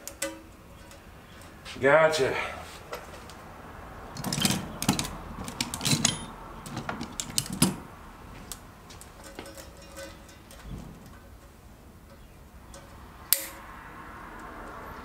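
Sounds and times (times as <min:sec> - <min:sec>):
clicks and knocks of tools on workbench: 0:04.2 - 0:07.8.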